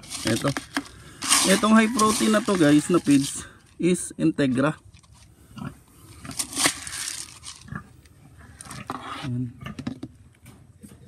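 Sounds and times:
feed pellets rattling in scoop: 0.0s - 5.2s, 6.3s - 7.8s.

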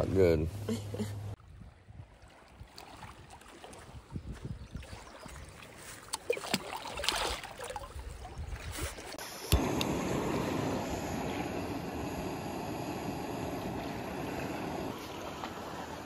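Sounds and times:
soft knocks and splashes: 2.0s - 9.1s.

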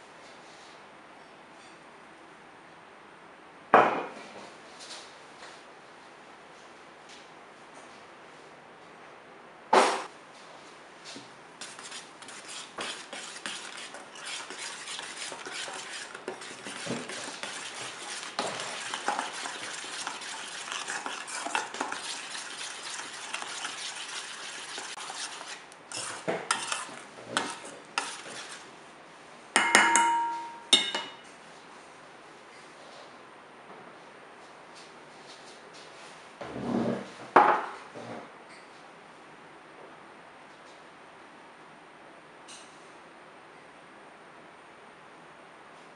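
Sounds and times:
metal spoon scraping a steel bowl: 11.6s - 28.7s
bowl ringing: 29.6s - 30.9s
spoon striking bowl: 29.6s - 31.2s.

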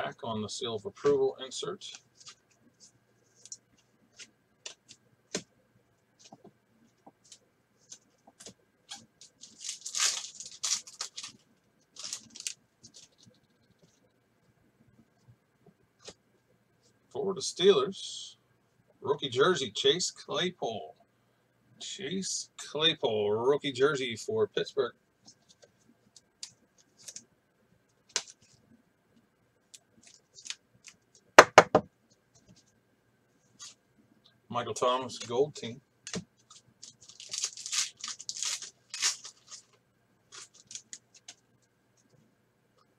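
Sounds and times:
cards and packaging rustling: 7.2s - 13.9s, 36.1s - 41.4s
foil wrapper tearing and crinkling: 9.3s - 11.4s, 12.0s - 12.6s, 36.8s - 41.0s.

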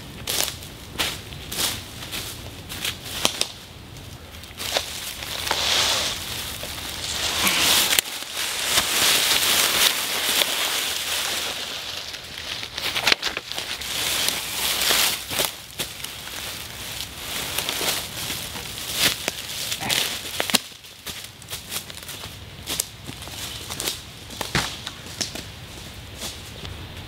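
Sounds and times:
footsteps crunching through dry leaves: 0.2s - 26.6s
twigs cracking: 0.2s - 26.8s
branch scraping through leaves: 4.5s - 20.7s.

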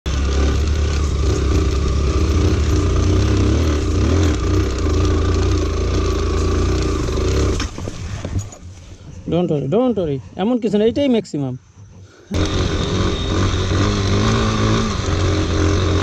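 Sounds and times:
motorcycle engine at low revs: 0.1s - 8.3s, 12.3s - 16.0s.

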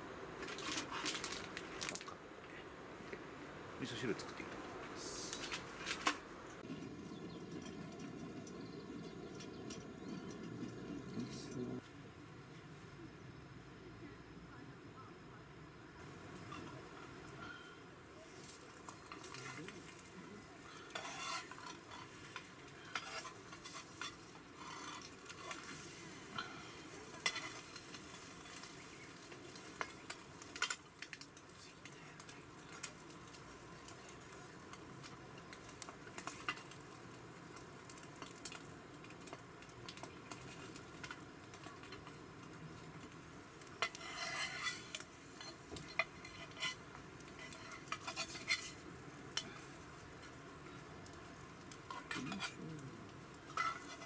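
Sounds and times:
omelette sizzling in frying pan: 15.9s - 54.0s
metal spatula scraping pan: 20.8s - 28.4s, 43.8s - 48.8s, 53.5s - 54.0s.

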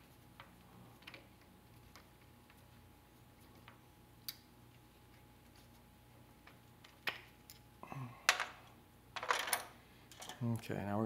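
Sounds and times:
tools clattering on workbench: 9.2s - 10.4s.

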